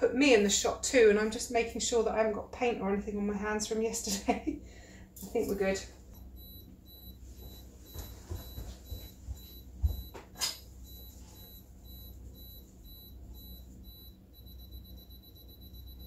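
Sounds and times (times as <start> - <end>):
camera self-timer beeping: 6.2 - 10.2, 10.8 - 16.0.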